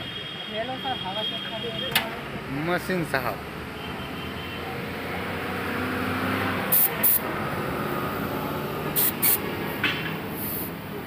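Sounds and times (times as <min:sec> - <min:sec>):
compressed air hissing: 0:06.7 - 0:07.3, 0:08.8 - 0:10.8.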